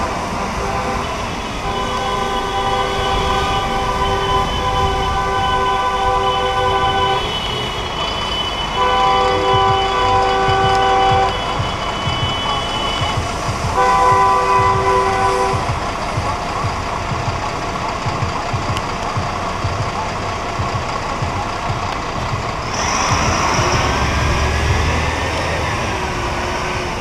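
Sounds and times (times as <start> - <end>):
car horn blasts: 0.0 - 18.8
traffic rumble and hiss: 0.0 - 27.0.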